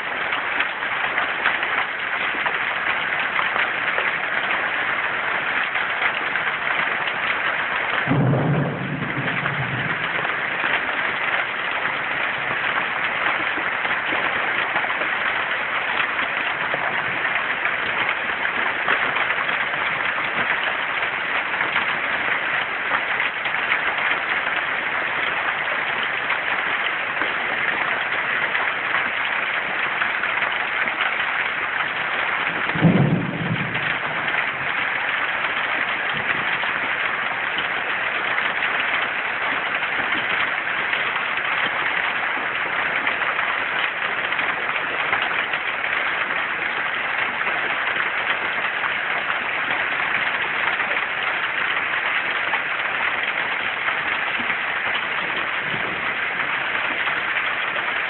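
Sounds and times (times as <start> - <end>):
heavy rain pouring: 0.0 - 58.0
low thump: 8.0 - 10.3, 32.7 - 33.8.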